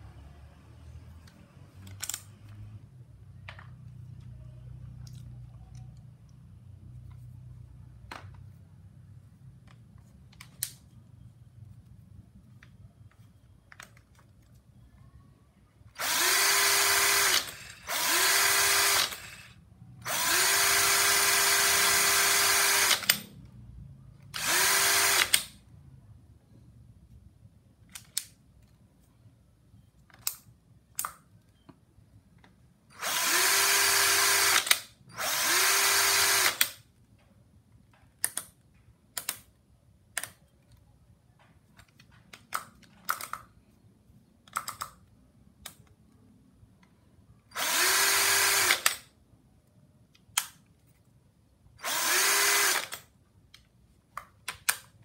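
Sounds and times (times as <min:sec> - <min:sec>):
cordless drill motor whining: 0:16.0 - 0:23.2, 0:24.4 - 0:25.4, 0:33.0 - 0:36.7, 0:47.6 - 0:49.0, 0:51.8 - 0:53.0.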